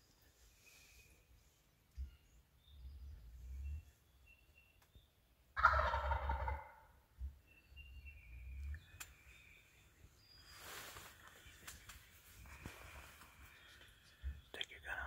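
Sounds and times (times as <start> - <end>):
turkey gobbling: 5.6 - 7.0.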